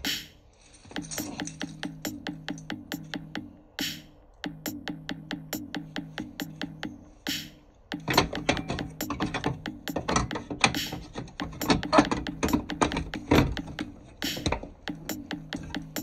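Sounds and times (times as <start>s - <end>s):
background music: 0.0s - 16.0s
clicks and knocks on metal box: 7.9s - 15.0s.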